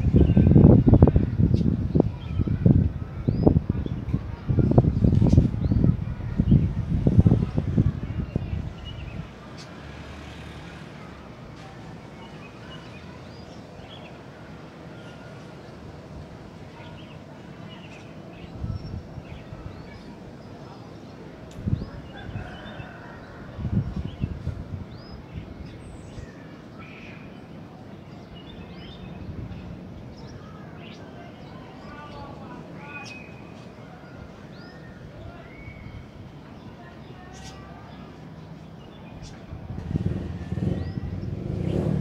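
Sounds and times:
wind rumbling on microphone: 0.0s - 9.5s, 18.2s - 20.1s, 21.5s - 26.4s, 28.5s - 30.2s, 39.0s - 42.0s.

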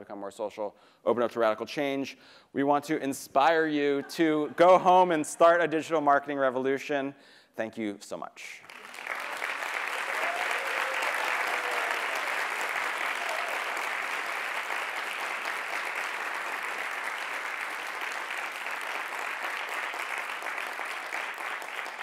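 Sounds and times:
large audience applauding: 8.6s - 22.0s.

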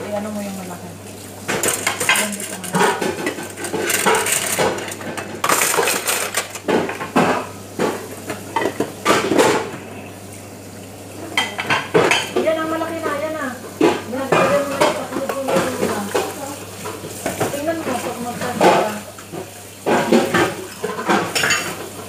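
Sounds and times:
cutlery and dishes clattering: 1.5s - 8.0s, 18.4s - 21.9s.

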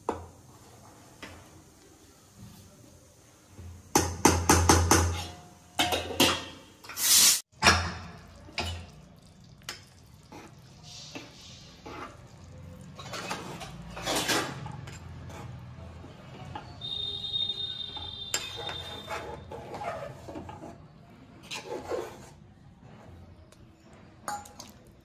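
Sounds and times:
ladle stirring in pressure cooker: 7.6s - 17.1s
spoon scraping metal plate: 13.0s - 15.7s, 17.9s - 20.8s, 21.4s - 22.4s.

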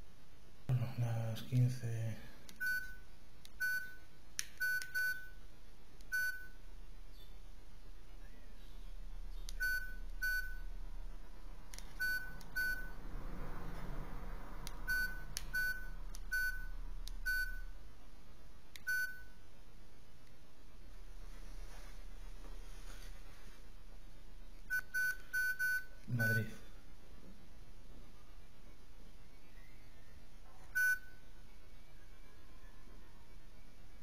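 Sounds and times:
phone keypad beeps: 2.6s - 3.0s, 3.6s - 4.0s, 4.6s - 5.4s, 6.1s - 6.6s, 9.6s - 10.6s, 11.9s - 13.0s, 14.9s - 17.7s, 18.8s - 19.4s, 24.7s - 26.6s, 30.8s - 31.2s.

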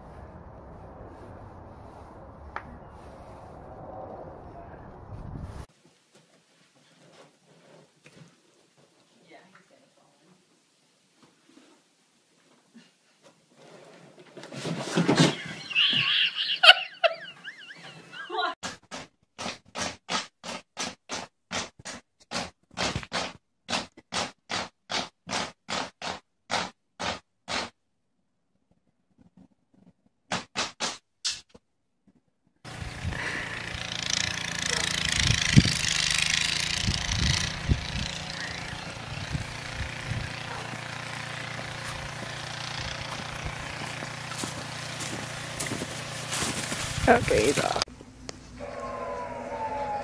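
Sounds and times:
snow shovel scraping snow: 13.6s - 15.8s, 32.7s - 47.8s
motor-like drone: 32.7s - 47.0s.

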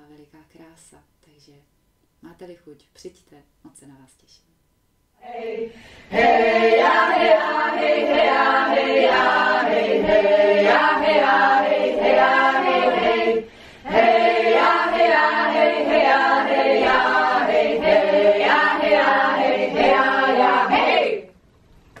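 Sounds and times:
women singing a cappella: 5.2s - 21.3s.

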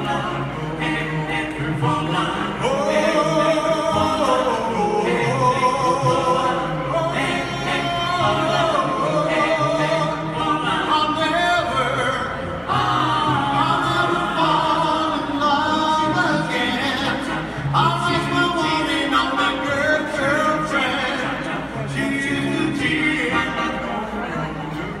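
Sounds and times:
vocal group singing in harmony: 0.0s - 24.5s.

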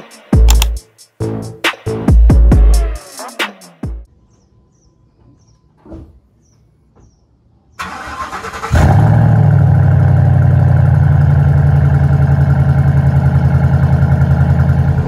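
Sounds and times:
engine starter cranking: 7.8s - 9.0s
truck engine idling: 10.6s - 15.0s.

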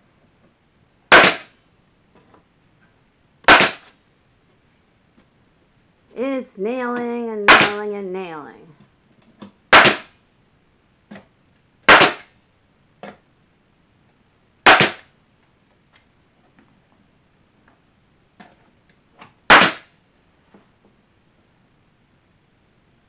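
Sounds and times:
nail gun firing: 1.1s - 1.6s, 3.5s - 3.9s, 7.5s - 7.8s, 9.7s - 10.1s, 11.8s - 12.3s, 14.7s - 15.1s, 19.5s - 19.9s.

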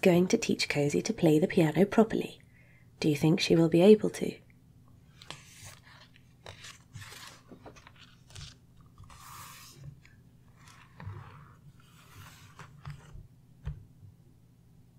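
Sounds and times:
book pages rustling: 5.0s - 13.8s
book knocking on table: 12.6s - 13.9s.

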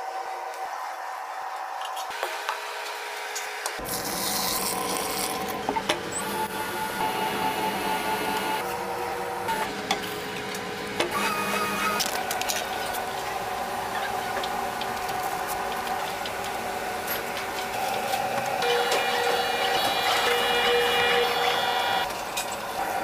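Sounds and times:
kitchen machine motor whirring: 17.2s - 22.1s.

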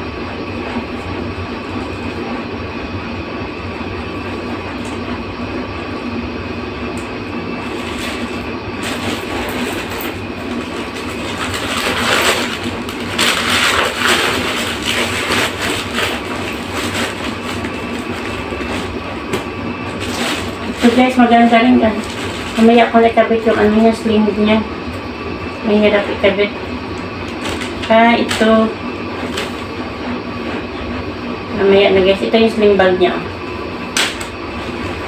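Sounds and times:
low background hum: 0.0s - 35.0s
plastic wrapping crinkling: 7.7s - 19.0s, 19.9s - 22.9s.

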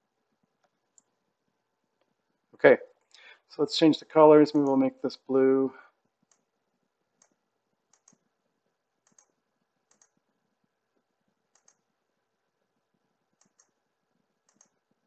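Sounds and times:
computer mouse clicks: 6.2s - 6.5s, 7.2s - 8.3s, 9.0s - 10.2s, 11.5s - 11.9s, 13.4s - 13.8s, 14.4s - 14.9s.

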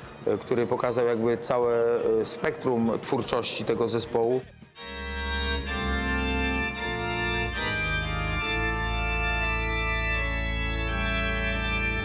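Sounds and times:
organ keyboard chords: 3.8s - 12.0s
low bass: 4.8s - 12.0s.

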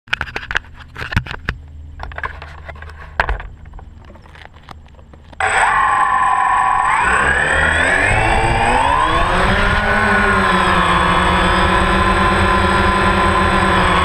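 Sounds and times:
drone motors whining: 5.4s - 14.0s.

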